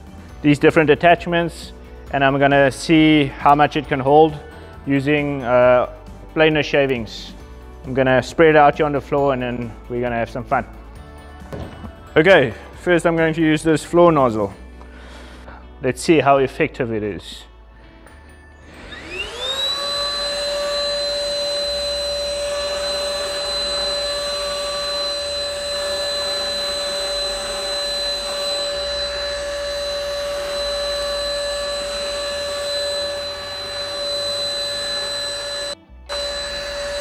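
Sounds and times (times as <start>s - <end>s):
handheld vacuum motor whine: 18.6s - 37.0s.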